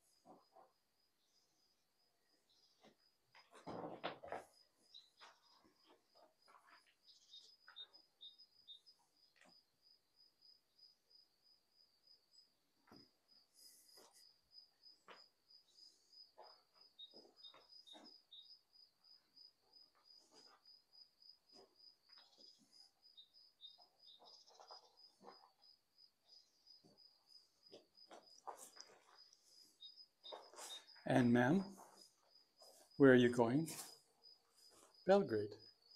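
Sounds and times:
faint high chirp: 7.1s - 9.1s.

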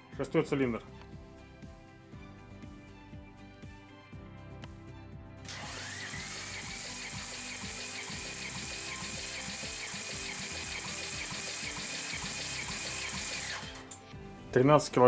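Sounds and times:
electric motor whine cranking engine: 5.5s - 14.0s.

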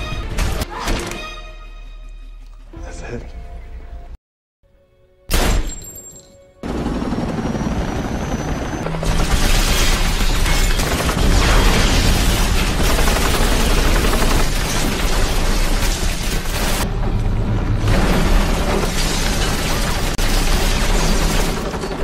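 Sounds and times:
dramatic music: 0.0s - 4.2s, 6.6s - 21.8s
rumble with crashing debris: 9.1s - 22.0s.

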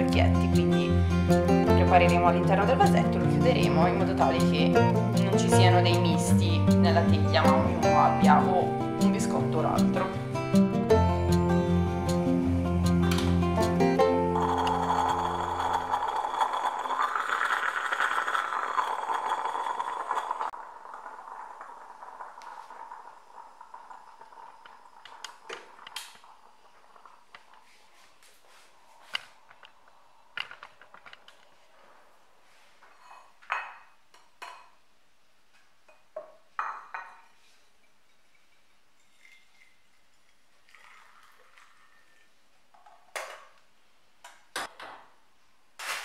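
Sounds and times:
moka pot hissing and sputtering: 13.9s - 32.6s.

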